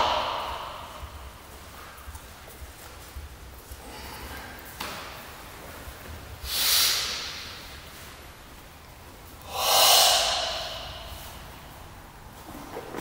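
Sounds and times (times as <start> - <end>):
forceful hissing breaths: 0.0 - 1.6, 6.4 - 8.1, 9.4 - 12.1.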